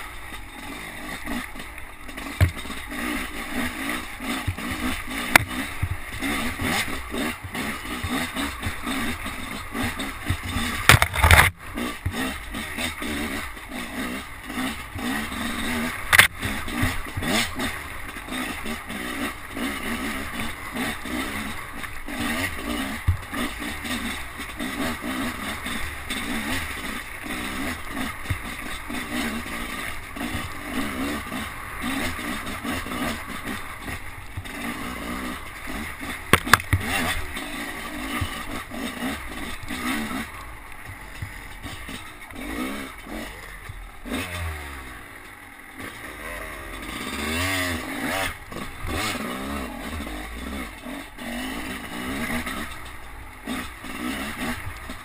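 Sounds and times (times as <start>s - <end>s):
dirt bike engine revving: 0.0s - 55.0s
bike clattering and knocking: 2.1s - 3.0s, 10.2s - 12.3s, 36.2s - 37.2s, 40.6s - 43.9s.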